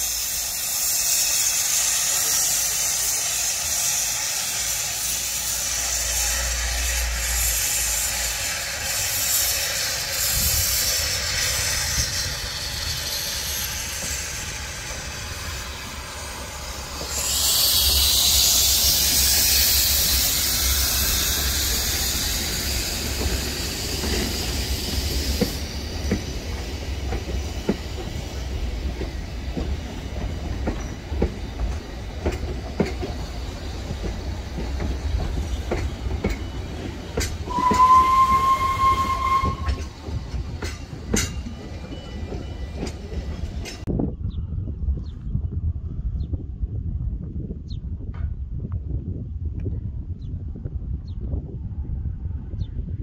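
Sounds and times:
steam hissing: 0:00.0 - 0:43.8.

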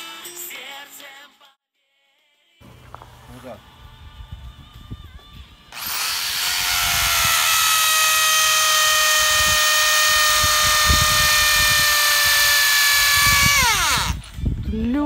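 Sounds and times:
electric drill motor whine: 0:05.7 - 0:14.3.

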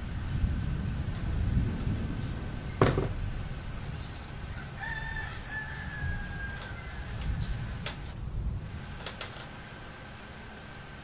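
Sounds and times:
rooster crowing: 0:04.4 - 0:07.5.

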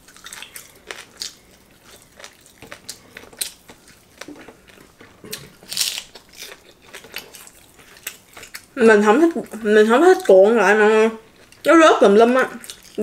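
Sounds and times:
wet chewing: 0:00.0 - 0:13.0
loud crunch of biting food: 0:05.2 - 0:08.7.

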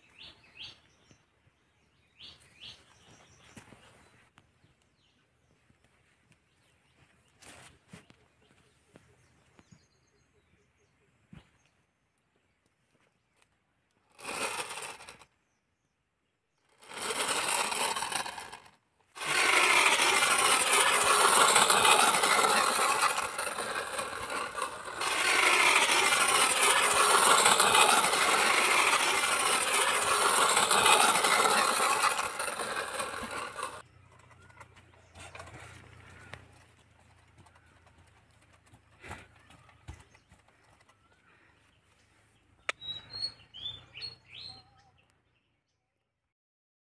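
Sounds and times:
toy bus whirring on dirt: 0:07.3 - 0:08.2, 0:13.4 - 0:15.6, 0:16.6 - 0:45.3.

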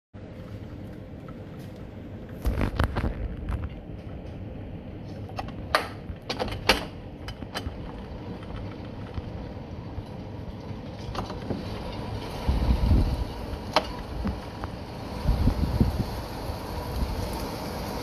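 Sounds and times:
storm wind and rain on window: 0:00.2 - 0:18.0
sharp clicks and knocks: 0:05.2 - 0:09.4.

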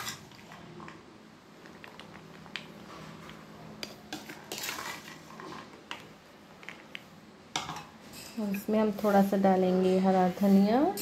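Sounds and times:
spoon scraping a plate: 0:03.8 - 0:05.7.

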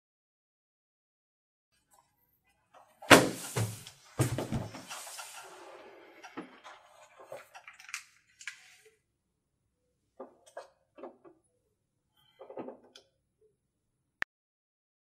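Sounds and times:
heavy thump: 0:03.1 - 0:04.8
knocks and rustles on a table: 0:03.1 - 0:05.1.

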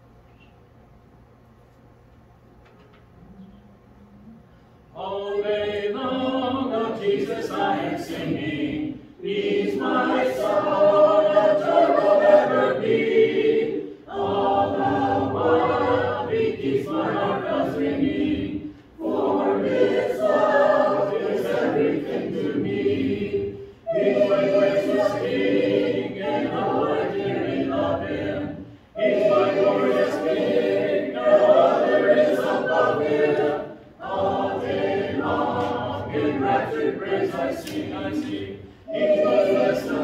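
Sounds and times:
congregation singing a hymn: 0:04.9 - 0:40.0.

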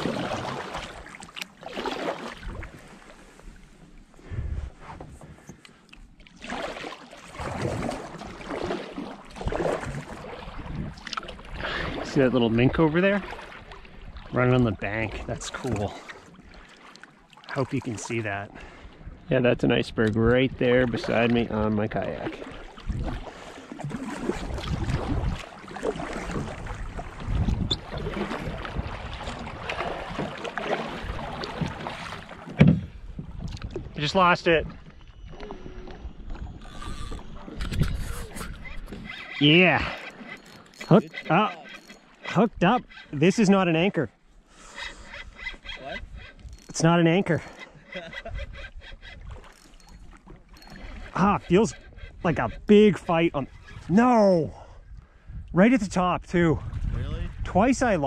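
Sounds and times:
kayak paddle splashing in water: 0:00.0 - 0:03.5, 0:06.0 - 0:14.5, 0:20.8 - 0:43.2, 0:47.6 - 0:54.0
wind buffeting microphone: 0:04.2 - 0:05.4, 0:09.4 - 0:12.9, 0:22.8 - 0:32.0, 0:32.6 - 0:34.0, 0:34.6 - 0:39.2, 0:47.4 - 0:54.0, 0:54.8 - 0:58.0.

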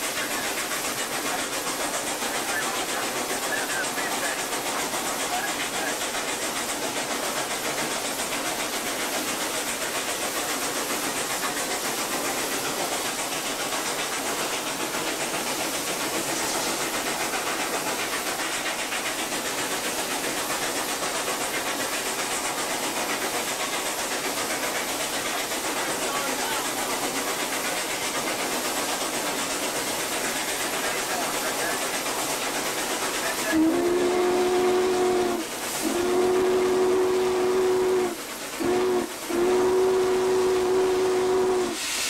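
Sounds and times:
steam locomotive running: 0:00.0 - 0:42.0.

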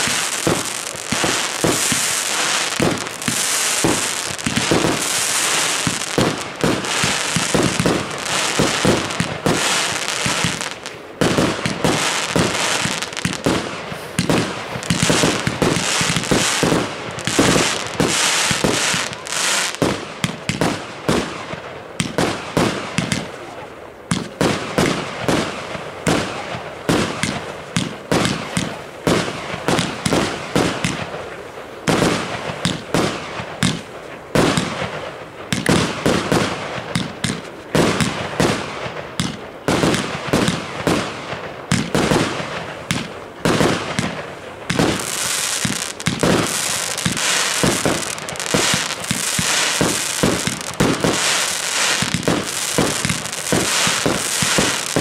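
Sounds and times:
hissing crackle: 0:00.0 - 0:19.8, 0:43.8 - 0:55.0
fireworks bangs: 0:00.0 - 0:55.0.

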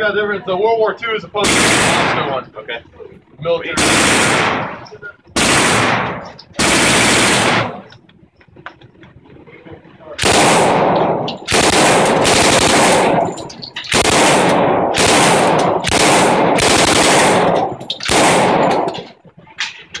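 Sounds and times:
submachine gun firing bursts: 0:01.4 - 0:02.3, 0:03.8 - 0:07.9, 0:10.2 - 0:19.1
gunfire echoing indoors: 0:10.2 - 0:19.1.

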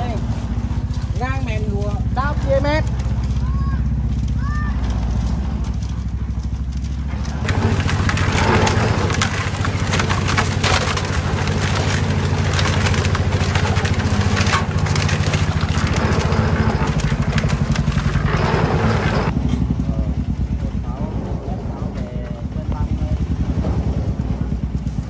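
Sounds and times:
gravel rattling into wheelbarrow: 0:00.0 - 0:19.4
concrete mixer humming: 0:00.0 - 0:25.0.

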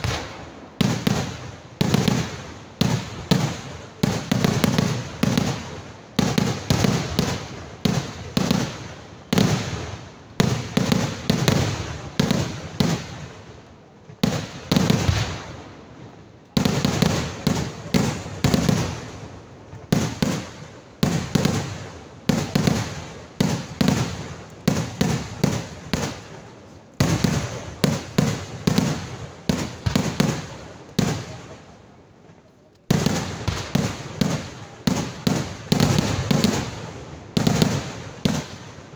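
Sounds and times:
loud firecracker bangs: 0:00.0 - 0:13.2, 0:32.9 - 0:38.9.

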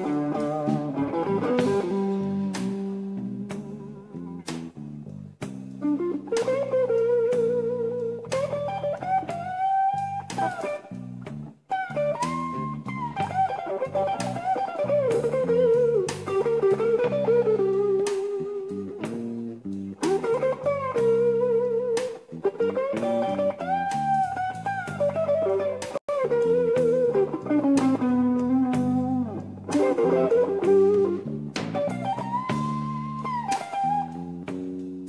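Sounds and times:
bass and drums: 0:00.0 - 0:35.0
electric guitar lead: 0:00.0 - 0:35.0.

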